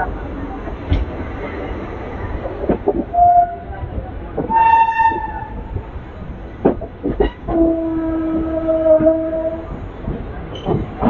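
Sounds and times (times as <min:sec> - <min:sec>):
train rumbling: 0:00.0 - 0:11.0
train horn: 0:03.1 - 0:03.6, 0:04.5 - 0:05.6, 0:07.5 - 0:09.7.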